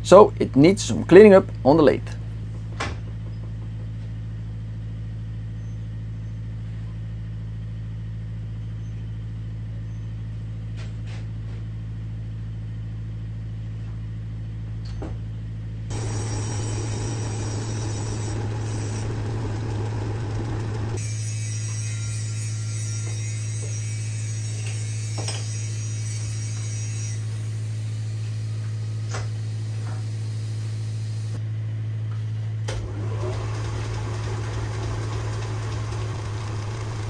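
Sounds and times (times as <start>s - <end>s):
lathe motor hum: 15.9s - 21.0s, 32.9s - 37.0s
rough machine running: 15.9s - 21.0s, 32.9s - 37.0s.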